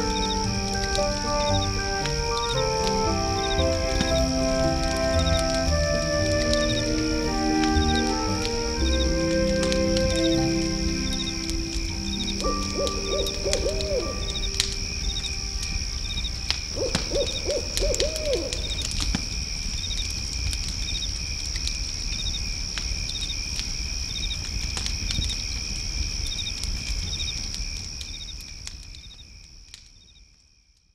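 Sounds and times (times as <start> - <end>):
owl hooting: 0.0 - 15.6, 16.7 - 18.9
insect trills: 0.0 - 30.9.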